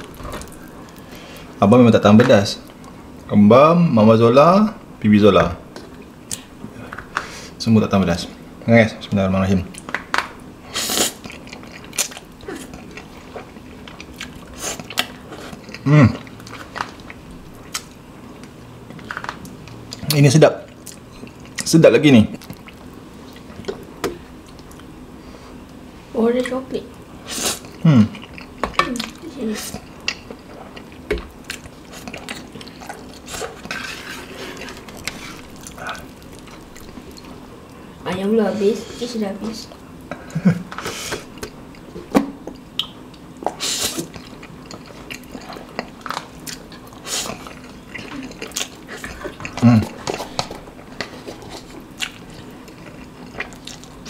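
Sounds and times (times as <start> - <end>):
noodles slurped and chewed: 43.5 - 54.0.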